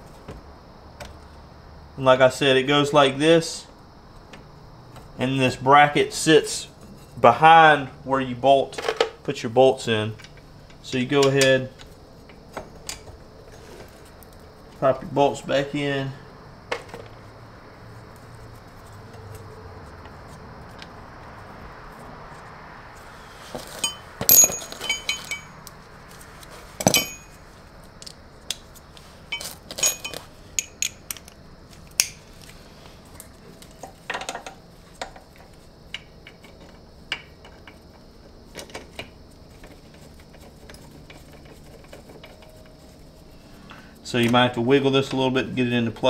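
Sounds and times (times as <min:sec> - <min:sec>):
metal parts clinking: 0:23.7 - 0:25.7, 0:26.8 - 0:27.4, 0:29.3 - 0:32.2.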